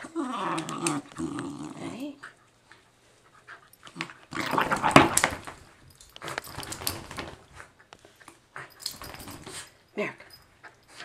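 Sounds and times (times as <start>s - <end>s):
dog scuffling with rope toy: 1.8s - 9.8s.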